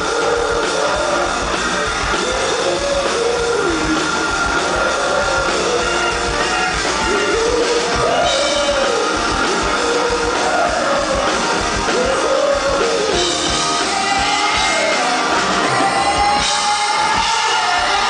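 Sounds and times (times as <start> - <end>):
live rock band playing: 0.0 - 18.0
man singing into microphone: 2.2 - 6.2, 7.0 - 18.0.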